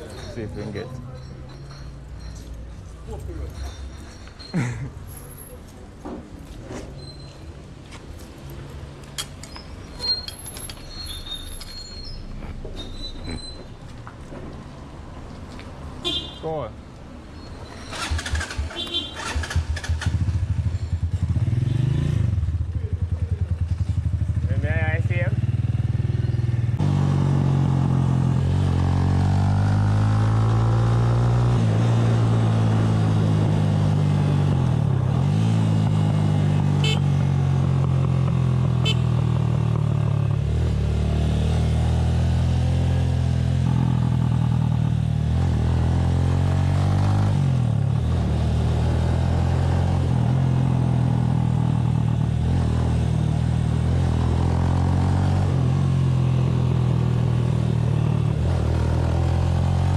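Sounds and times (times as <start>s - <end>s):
motorcycle engine accelerating: 17.9s - 59.9s.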